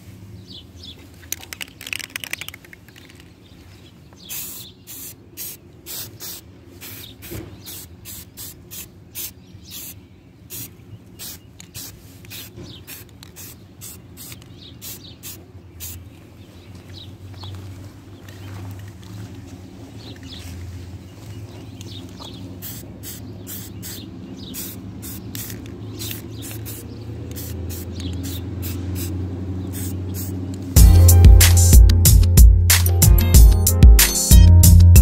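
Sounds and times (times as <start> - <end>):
spray can ball rattling: 1.2 - 3.5, 4.2 - 16.0, 22.6 - 31.7
spray paint hissing bursts: 4.2 - 16.0, 22.5 - 31.7.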